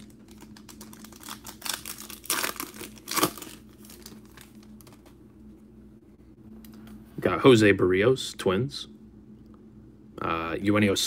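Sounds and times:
foil wrapper crinkling and tearing: 0.0 - 5.2
faint steady hum: 0.0 - 11.0.

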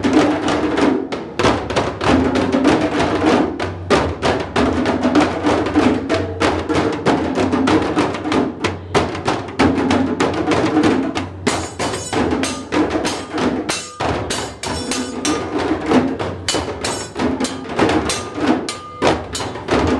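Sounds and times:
djembe hand drums playing: 0.0 - 19.9.

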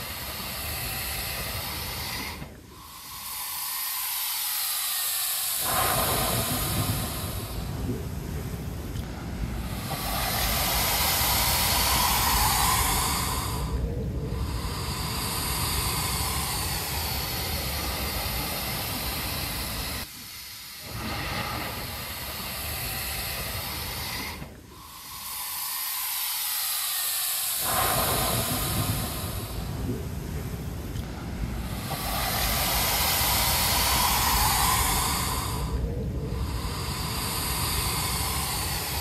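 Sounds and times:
blowhole hissing: 0.0 - 39.0
rush of surf: 4.9 - 20.2, 26.9 - 39.0.

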